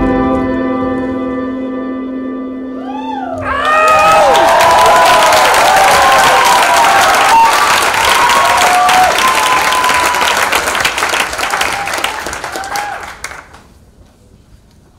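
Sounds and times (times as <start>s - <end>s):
whoops and shouts: 2.8s - 10.4s, 11.6s - 13.1s
audience clapping: 3.4s - 13.8s.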